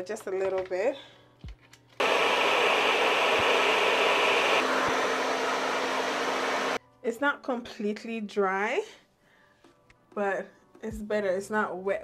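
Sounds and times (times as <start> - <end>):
hair dryer blowing: 2.0 - 6.8.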